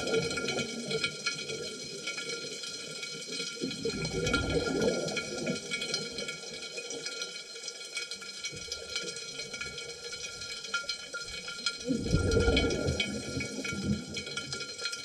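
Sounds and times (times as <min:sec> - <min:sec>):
faint crackling clicks: 0:00.0 - 0:15.0
bubbles from diver exhaling: 0:03.8 - 0:05.6, 0:11.8 - 0:14.3.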